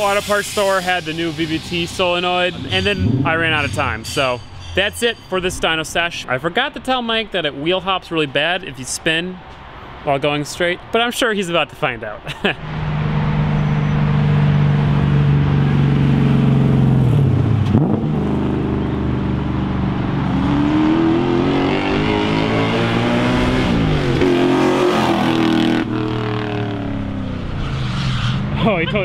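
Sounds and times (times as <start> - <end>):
truck engine revving: 12.6 - 28.9.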